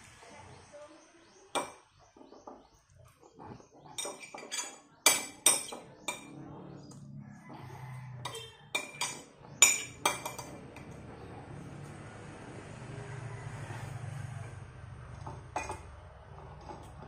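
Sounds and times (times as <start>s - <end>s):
metal spoon clinking on ceramic plate: 4.0s - 6.3s, 8.2s - 10.6s, 15.2s - 15.8s.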